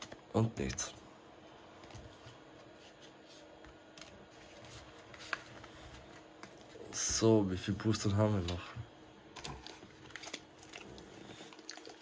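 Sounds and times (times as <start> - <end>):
cards rustling and tapping: 1.8 - 6.8.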